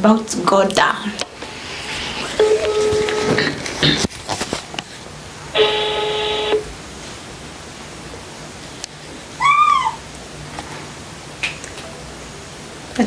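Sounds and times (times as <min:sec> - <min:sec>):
phone ringback tone: 0:02.4 - 0:03.4, 0:05.6 - 0:06.7.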